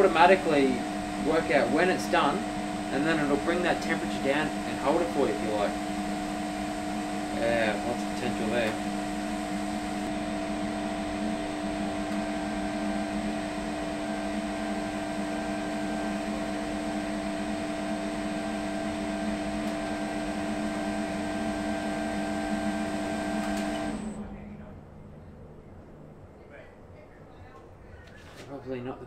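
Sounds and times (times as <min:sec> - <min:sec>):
smoker fan humming: 0:00.0 - 0:27.4.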